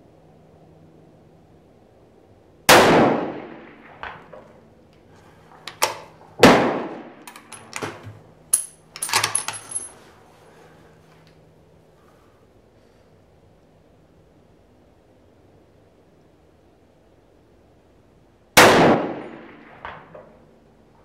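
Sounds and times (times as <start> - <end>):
rifle shots echoing: 2.7 - 4.3, 6.4 - 7.6, 18.6 - 20.1
metallic clicks and clinks: 7.2 - 7.8, 8.5 - 10.0.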